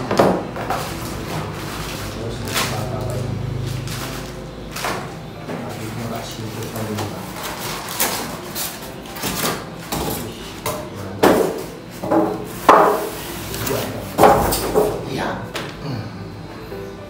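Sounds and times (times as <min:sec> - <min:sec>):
plastic and foam rustling: 0:00.4 - 0:10.6.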